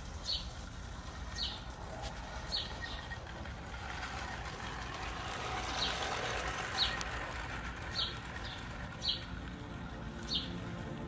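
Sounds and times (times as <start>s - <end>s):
bird chirping: 0.2s - 0.6s, 1.3s - 1.7s, 2.4s - 3.3s, 7.9s - 9.4s, 10.2s - 10.6s.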